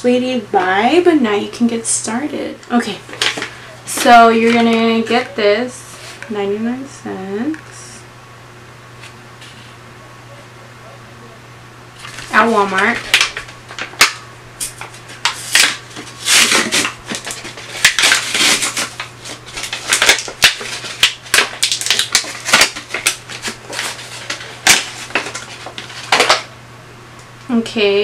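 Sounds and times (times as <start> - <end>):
blister pack crackling and tearing: 12.0 - 26.5.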